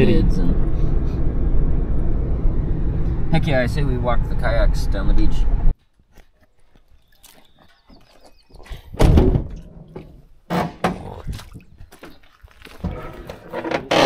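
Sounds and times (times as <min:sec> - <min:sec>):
footsteps on gravel: 0:05.8 - 0:08.9, 0:11.2 - 0:13.5
van door slamming: 0:09.0 - 0:09.7.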